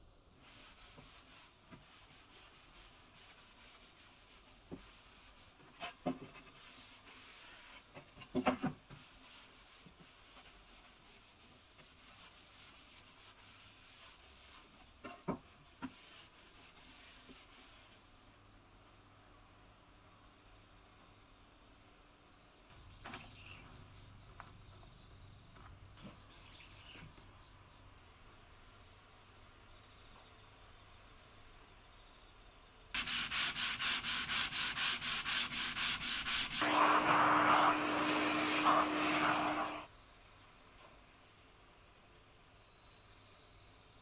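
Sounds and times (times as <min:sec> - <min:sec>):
damp sponge rubbing wood: 0:00.4 - 0:08.0, 0:08.9 - 0:15.0, 0:15.8 - 0:18.0, 0:33.0 - 0:39.9.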